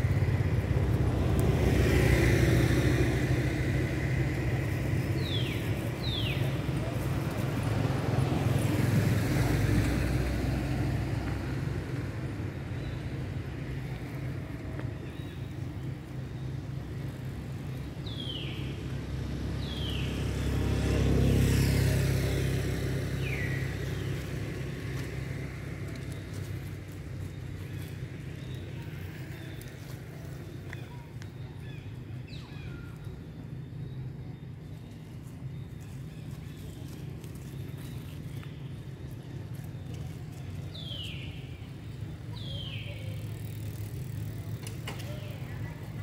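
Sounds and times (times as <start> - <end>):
vehicle engine rumble: 0.0 - 46.0.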